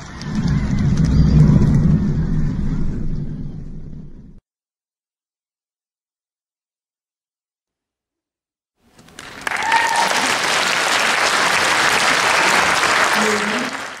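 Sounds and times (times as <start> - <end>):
audience applauding: 8.9 - 14.0.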